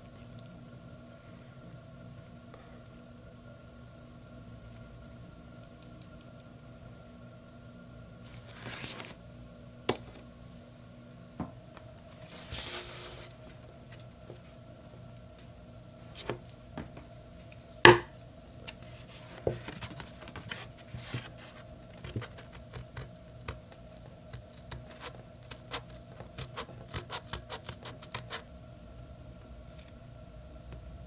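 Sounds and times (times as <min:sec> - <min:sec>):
paper rustling: 0:08.3 - 0:09.2, 0:18.7 - 0:23.6
scissors snipping paper: 0:21.9 - 0:23.6, 0:24.3 - 0:28.4.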